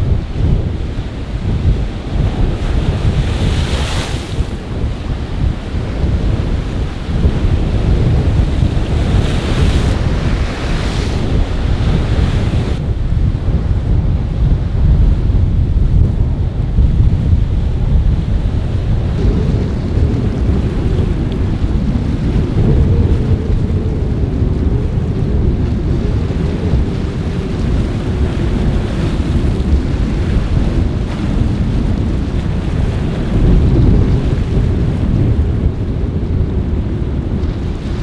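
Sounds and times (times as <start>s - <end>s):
choppy water: 0.0s - 38.0s
wind buffeting microphone: 0.0s - 38.0s.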